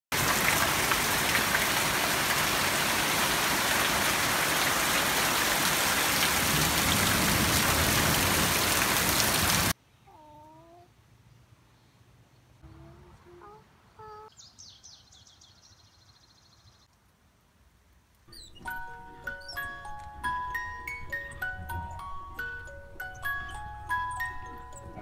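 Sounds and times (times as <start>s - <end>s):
heavy rain pouring: 0.1s - 9.8s.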